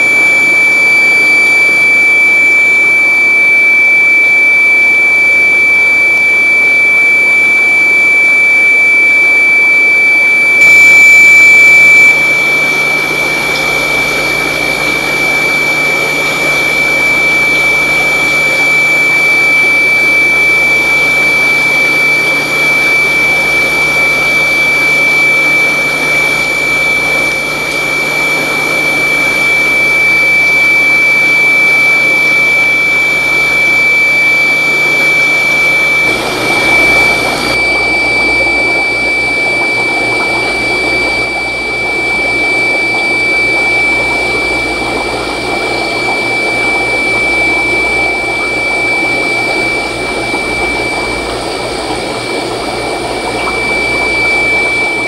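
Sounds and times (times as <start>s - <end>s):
high whine: 10.6s - 12.3s, 43.5s - 55.0s
aquarium pump humming: 10.6s - 55.0s.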